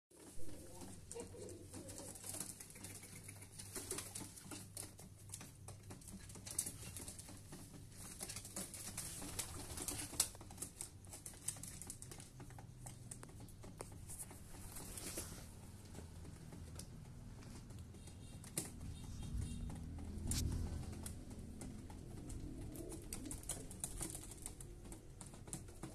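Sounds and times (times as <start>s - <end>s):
rustling and clicking: 0.1s - 25.9s
pigeons cooing: 0.2s - 4.4s, 14.8s - 25.9s.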